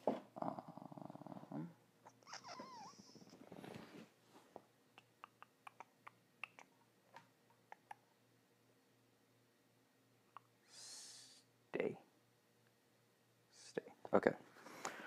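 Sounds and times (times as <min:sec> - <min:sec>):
faint irregular clicks: 0:05.0 - 0:08.1.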